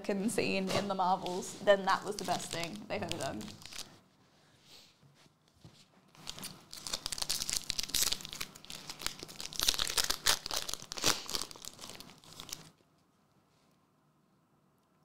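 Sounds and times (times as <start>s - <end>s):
foil wrapper tearing and crinkling: 2.2s - 3.9s, 6.2s - 12.7s.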